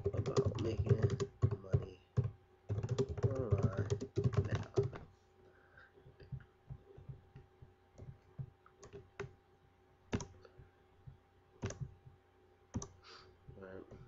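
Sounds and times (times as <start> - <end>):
computer mouse clicking: 6.2 - 9.4, 10.1 - 10.5, 11.6 - 12.0, 12.7 - 13.0.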